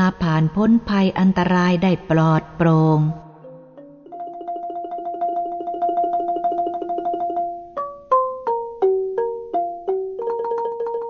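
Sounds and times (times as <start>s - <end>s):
repeated struck notes music: 3.2s - 11.0s.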